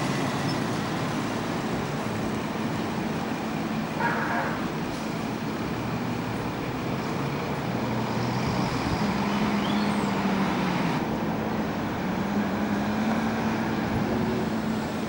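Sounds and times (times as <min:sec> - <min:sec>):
bus diesel engine accelerating: 0:00.0 - 0:15.0
street traffic: 0:00.0 - 0:15.0.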